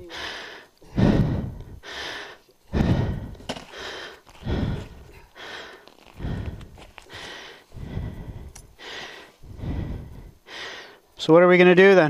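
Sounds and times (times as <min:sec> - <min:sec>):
person panting heavily: 0:00.0 - 0:11.0.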